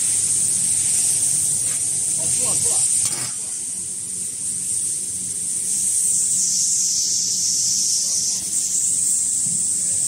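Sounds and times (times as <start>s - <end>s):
food-processing machinery hiss and hum: 0.0s - 10.0s.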